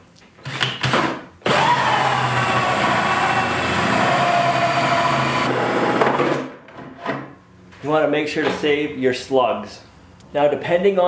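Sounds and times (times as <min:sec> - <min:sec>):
drill with hole saw cutting plastic: 0:00.5 - 0:06.4.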